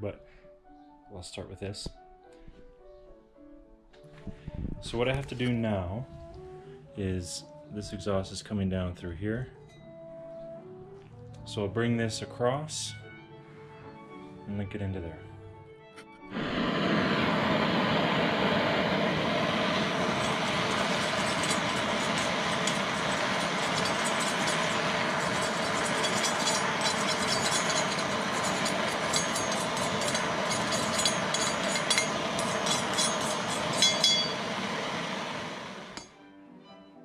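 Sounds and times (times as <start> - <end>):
propane torch hissing: 16.3 - 36.1
crackles and clicks: 19.4 - 34.4.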